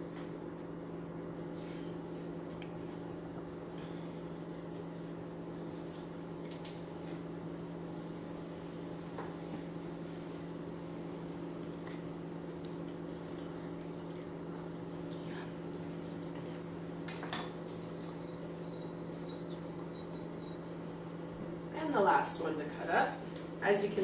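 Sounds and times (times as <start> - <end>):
microwave oven humming: 0.0 - 24.0.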